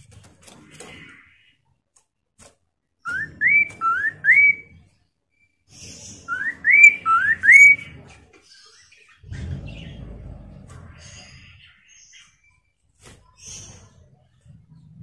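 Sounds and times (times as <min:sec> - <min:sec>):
bird whistling rising notes: 0:03.1 - 0:04.7, 0:06.2 - 0:07.9
low rumbling noise: 0:09.2 - 0:11.5.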